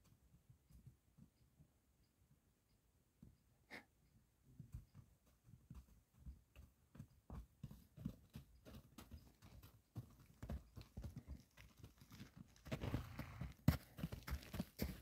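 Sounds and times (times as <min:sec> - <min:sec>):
hooves crunching through snow: 0:04.6 - 0:15.0.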